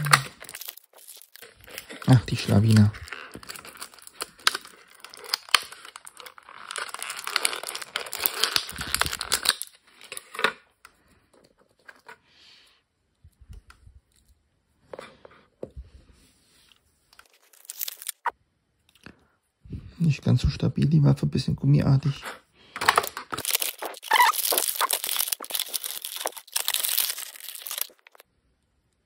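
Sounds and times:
plastic packaging crinkling: 0:00.0 - 0:10.5, 0:17.2 - 0:18.3, 0:22.8 - 0:28.2.

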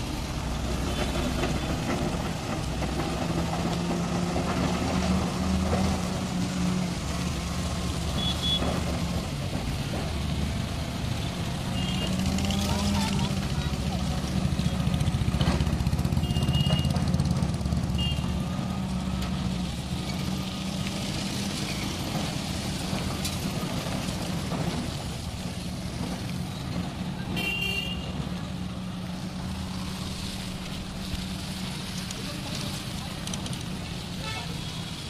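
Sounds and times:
road traffic: 0:00.0 - 0:35.0
vehicle horn toots: 0:08.2 - 0:08.7, 0:16.2 - 0:17.0, 0:17.9 - 0:18.3, 0:27.4 - 0:28.1.

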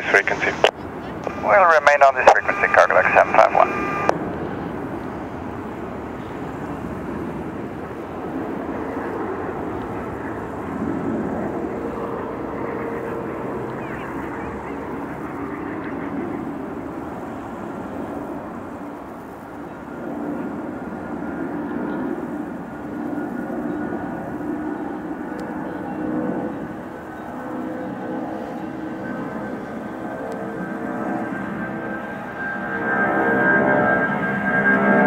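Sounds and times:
jet engines rumbling: 0:00.0 - 0:35.0.

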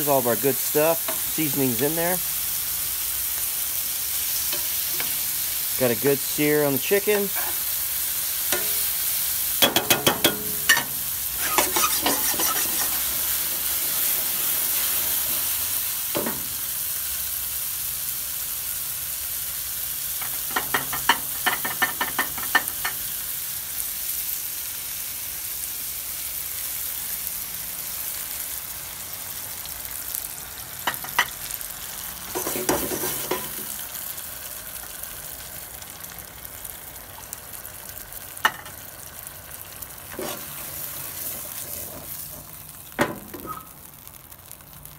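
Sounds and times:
food sizzling in a frying pan: 0:00.0 - 0:44.9
metal tongs scraping a pan: 0:01.0 - 0:01.9, 0:04.4 - 0:05.3, 0:06.8 - 0:07.8, 0:08.5 - 0:09.0, 0:09.6 - 0:15.6, 0:20.2 - 0:23.0, 0:32.3 - 0:33.8, 0:40.1 - 0:42.6, 0:43.3 - 0:43.8.

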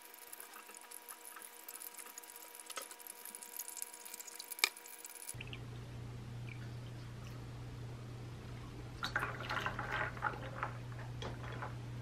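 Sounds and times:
water trickling through coffee dripper: 0:00.0 - 0:05.6
low steady hum: 0:00.0 - 0:12.0.

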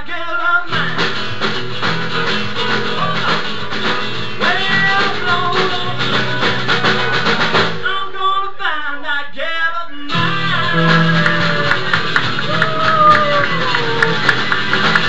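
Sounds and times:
man singing: 0:00.0 - 0:01.1, 0:04.4 - 0:07.1, 0:07.8 - 0:11.9
blues band playing live: 0:00.7 - 0:07.8, 0:10.1 - 0:15.0.

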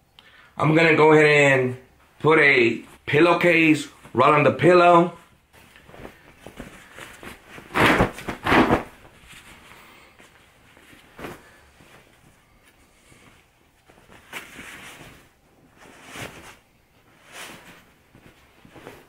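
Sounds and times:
pillowcase fabric rustling: 0:05.3 - 0:19.0.

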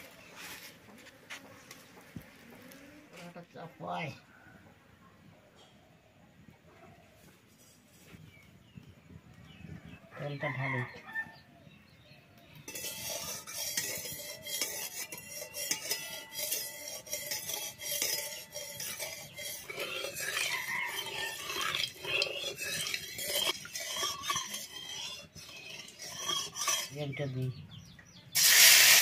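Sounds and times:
metal spatula scraping a pan: 0:12.7 - 0:27.3.

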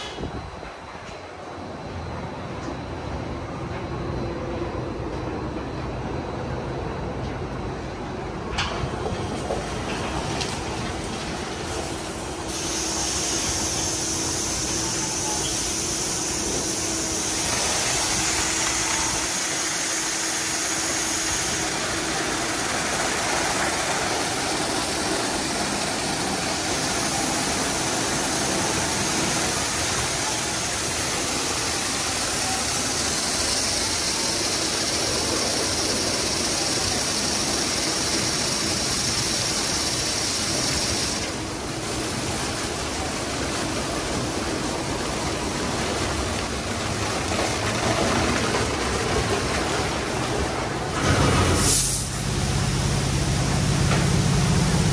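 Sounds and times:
low machinery hum: 0:00.0 - 0:54.9
water spray hissing: 0:11.7 - 0:41.3, 0:51.1 - 0:52.4.

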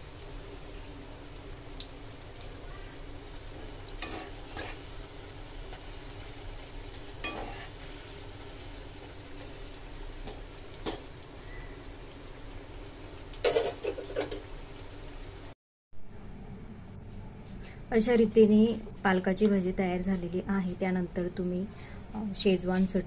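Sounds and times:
food deep-frying in oil: 0:00.0 - 0:15.6.

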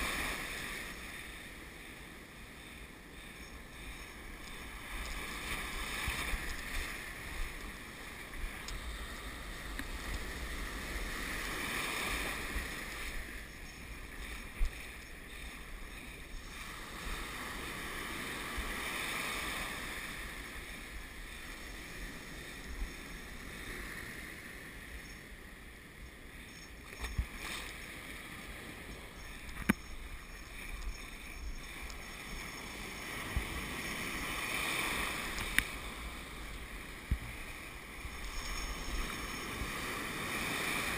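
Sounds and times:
ocean surf breaking: 0:00.0 - 0:26.5, 0:27.1 - 0:40.9
wind rumbling on microphone: 0:00.0 - 0:40.9.

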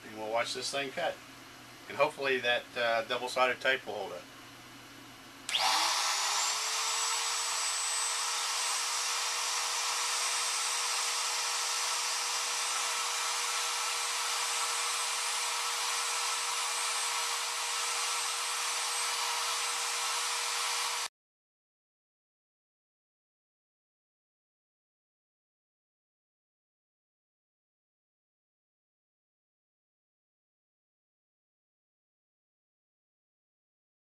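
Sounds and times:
wood router motor whining: 0:05.5 - 0:21.1.

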